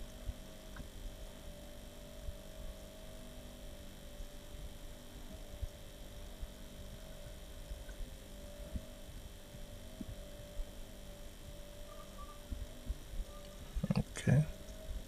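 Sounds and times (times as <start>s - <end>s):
electrical hum: 0.0s - 15.0s
faint high tones: 9.8s - 15.0s
soft low thumps: 12.4s - 15.0s.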